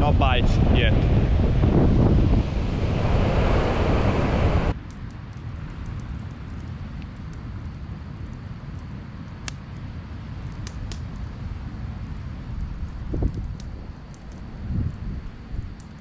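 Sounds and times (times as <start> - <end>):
wind buffeting microphone: 0.0 - 4.8, 10.0 - 15.8
campfire rumbling: 0.0 - 16.0
campfire crackles: 2.0 - 16.0.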